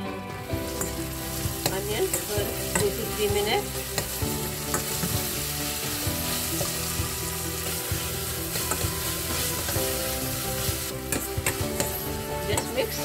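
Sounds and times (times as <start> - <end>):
leaves and onion sizzling in oil: 0.3 - 13.0
spoon tapping a pan: 0.7 - 5.4, 6.3 - 10.0, 10.6 - 13.0.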